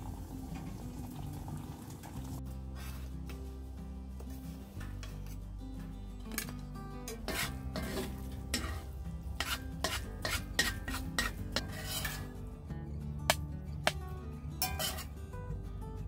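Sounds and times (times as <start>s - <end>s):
soft background music: 0.0s - 16.0s
fork scraping a skillet: 6.3s - 12.4s, 14.6s - 15.1s.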